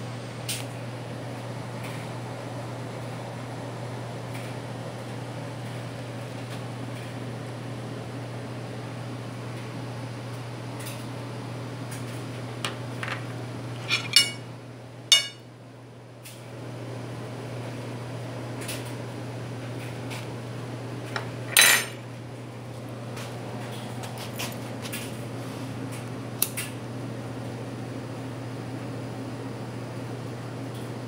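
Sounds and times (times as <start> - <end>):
steady low hum: 12.4 - 16.0
sharp clinks on glass bowl: 14.0 - 14.4, 15.1 - 15.4.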